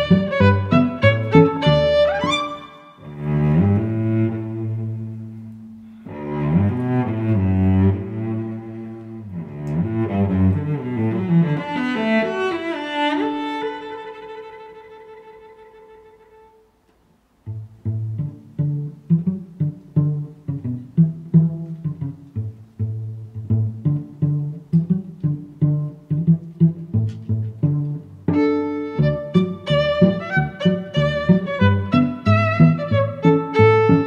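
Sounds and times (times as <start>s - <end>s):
short sharp notes: 0.0s - 3.2s
bowed low strings music: 0.0s - 16.6s, 17.4s - 34.0s.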